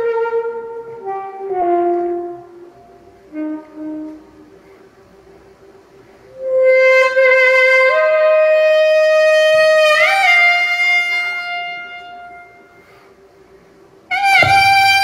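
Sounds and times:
saxophone solo: 0:00.0 - 0:04.6, 0:06.3 - 0:13.0, 0:14.1 - 0:15.0.

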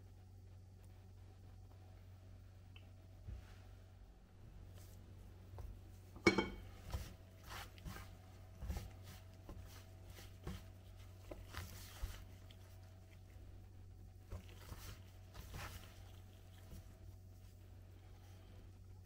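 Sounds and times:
flour scuffing and rustling: 0:04.6 - 0:18.8.

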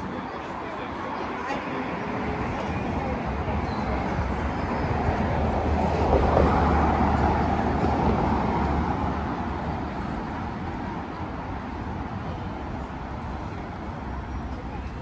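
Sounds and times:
car passing by: 0:04.9 - 0:10.7.

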